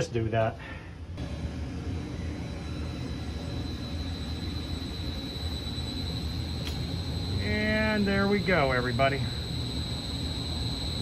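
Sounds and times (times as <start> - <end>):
blower motor rushing and whining: 1.2 - 11.0.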